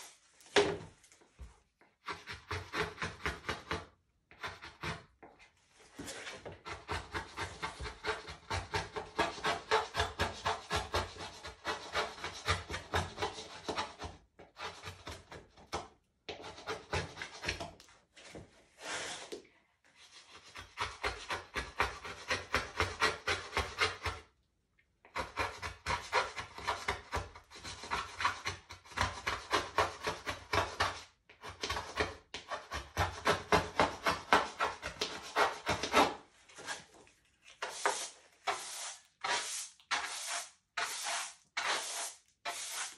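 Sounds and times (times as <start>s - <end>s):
pencil rubbing on plywood: 37.6s - 42.9s.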